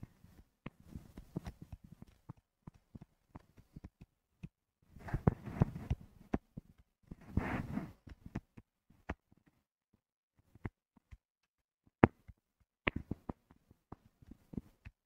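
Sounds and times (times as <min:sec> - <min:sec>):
stylus clicking on pen tablet: 0:00.1 - 0:06.8
stylus scratching: 0:05.0 - 0:06.0, 0:07.3 - 0:08.0.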